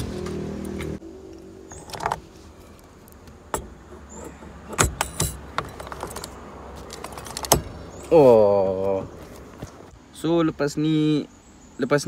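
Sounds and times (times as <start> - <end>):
steering wheel clicks and rattling: 3.0 - 8.1.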